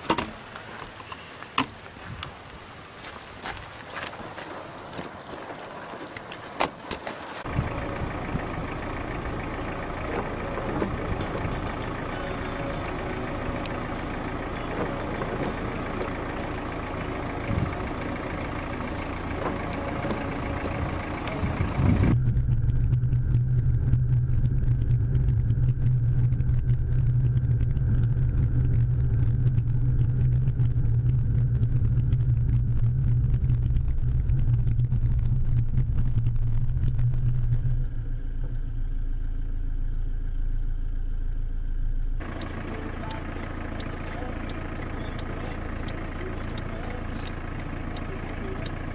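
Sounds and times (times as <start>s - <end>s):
car engine running: 0.0s - 48.9s
engine and road noise drone: 0.0s - 48.9s
clicks: 6.1s - 22.0s, 42.2s - 48.9s.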